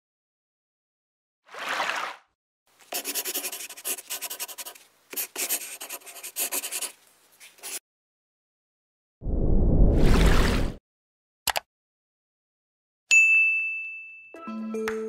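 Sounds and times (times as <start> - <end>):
pen scratching on paper: 2.9 - 7.8.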